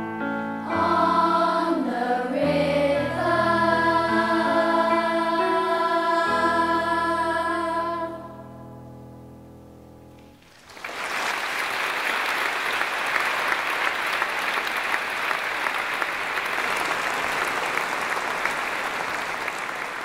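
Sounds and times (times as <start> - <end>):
choir chord: 0.2 - 8.9
audience applause: 10.4 - 20.0.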